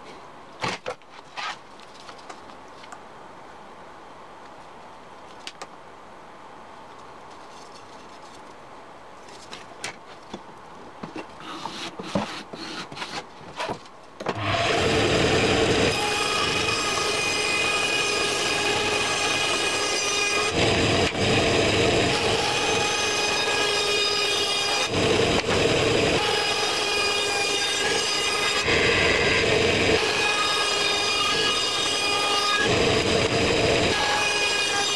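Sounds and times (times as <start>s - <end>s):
band saw cutting wood: 14.3s - 34.9s.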